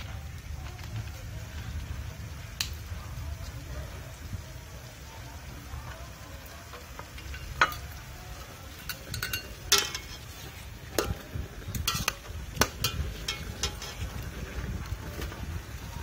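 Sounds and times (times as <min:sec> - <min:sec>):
metal utensils clinking in pot: 0:06.8 - 0:14.3.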